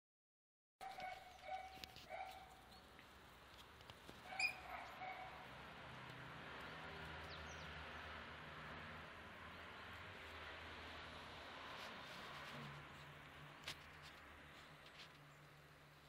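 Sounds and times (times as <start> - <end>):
puppy yipping: 0.8 - 2.6, 4.2 - 5.4.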